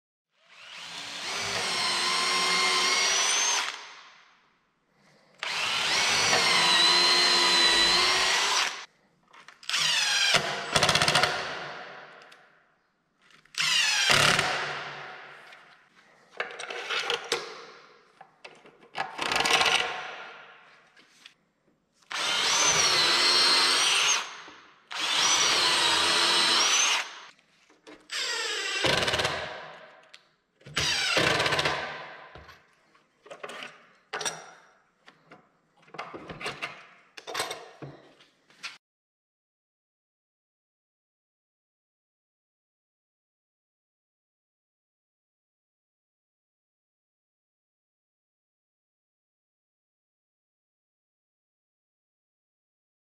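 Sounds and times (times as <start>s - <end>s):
cordless drill drilling: 0.5s - 3.9s, 5.4s - 8.9s, 9.7s - 11.4s, 13.6s - 14.6s, 22.1s - 27.3s, 28.1s - 29.4s, 30.8s - 31.6s.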